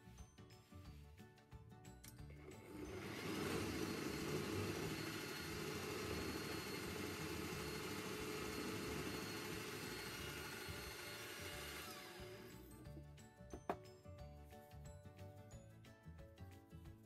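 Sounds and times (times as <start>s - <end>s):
drill press boring into wood: 2.6s - 12.7s.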